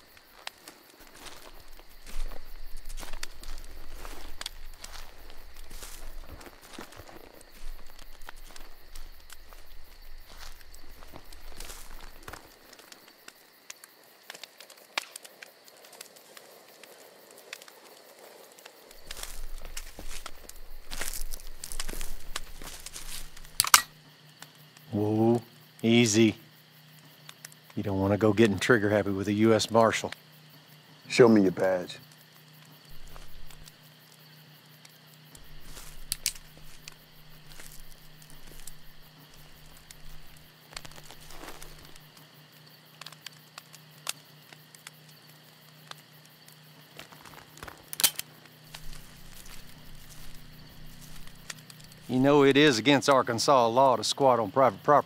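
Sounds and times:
campfire crackling and popping: 0.0 - 55.0.

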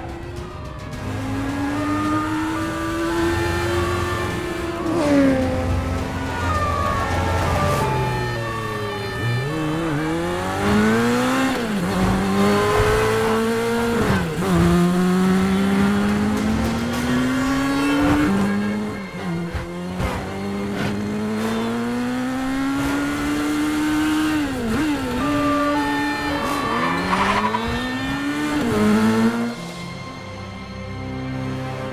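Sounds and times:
motorcycle engine accelerating: 0.1 - 29.6.

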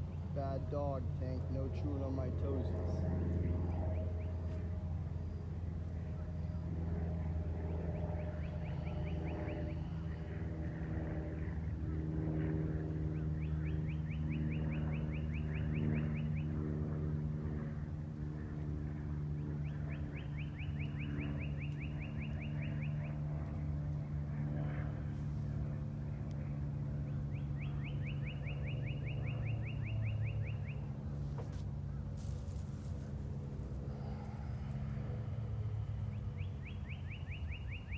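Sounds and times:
low engine hum: 0.0 - 37.9
bird trilling: 13.3 - 16.5, 27.3 - 30.9, 36.1 - 37.9.

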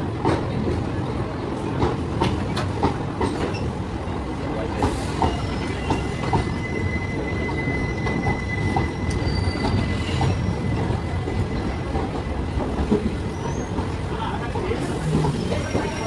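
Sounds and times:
train wheels rumbling on rail: 0.0 - 16.0
high wheel squeal: 5.1 - 11.2.

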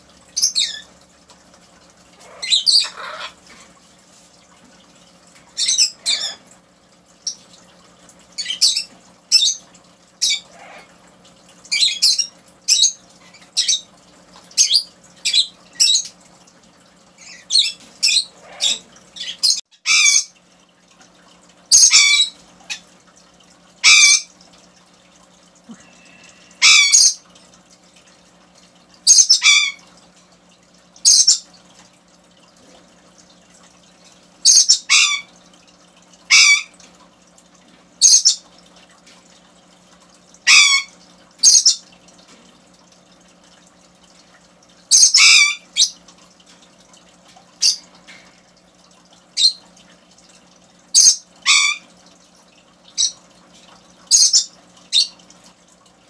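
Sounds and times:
macaw squawking: 2.2 - 3.4, 17.2 - 20.3, 21.7 - 22.8, 23.8 - 24.3, 26.6 - 27.2, 29.1 - 29.8, 34.5 - 35.3, 36.3 - 36.7, 40.4 - 41.8, 44.9 - 46.0, 51.0 - 51.9.

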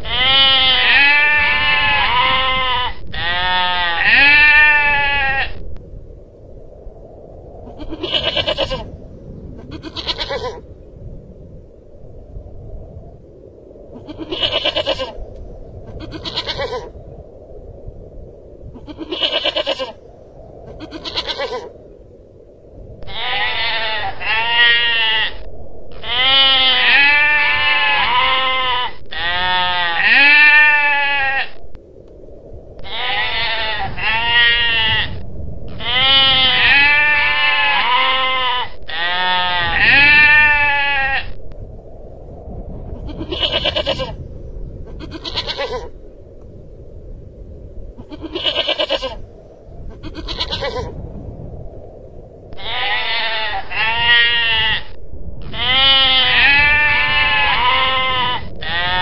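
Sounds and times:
goral wavering bleats: 0.0 - 5.6, 9.7 - 10.6, 14.0 - 15.2, 16.0 - 16.9, 18.8 - 20.0, 20.8 - 21.7, 23.1 - 25.4, 26.0 - 31.6, 35.8 - 41.4, 45.0 - 45.9, 48.1 - 49.2, 50.0 - 50.9, 52.6 - 59.0.

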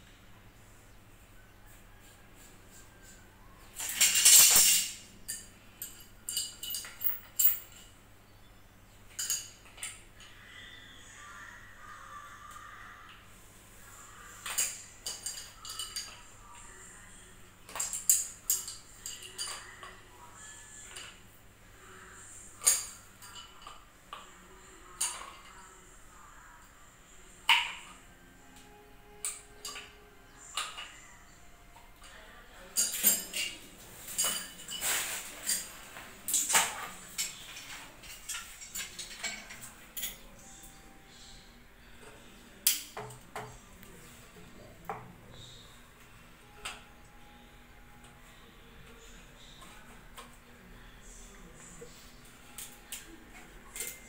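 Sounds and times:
metal hand tools clinking: 3.8 - 7.9.

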